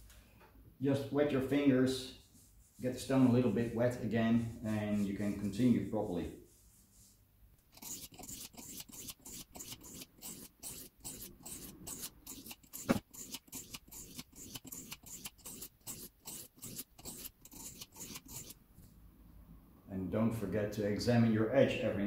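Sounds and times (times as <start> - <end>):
knife scraping on whetstone: 7.7 - 18.6.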